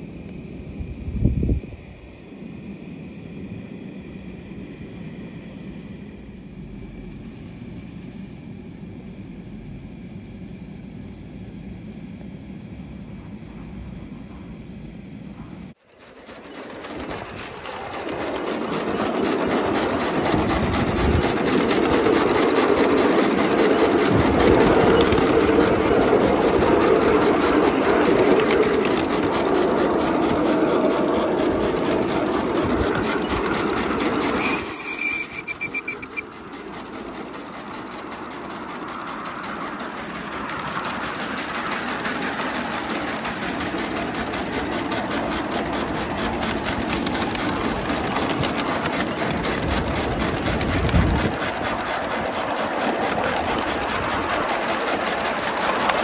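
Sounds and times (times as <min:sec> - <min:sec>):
steam locomotive exhaust chuffs: 0:00.0 - 0:56.0
wheels rattling over rails: 0:15.3 - 0:56.0.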